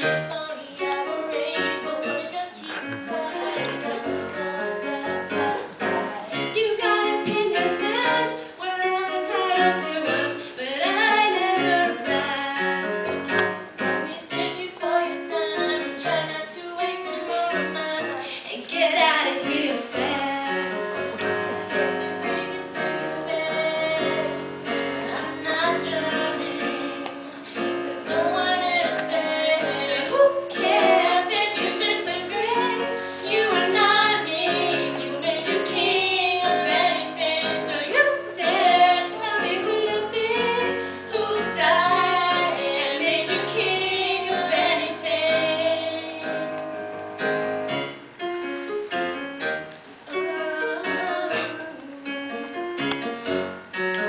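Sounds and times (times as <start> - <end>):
woman singing into a microphone: 0.0 - 46.6, 50.1 - 52.4
digital piano chords: 0.0 - 54.0.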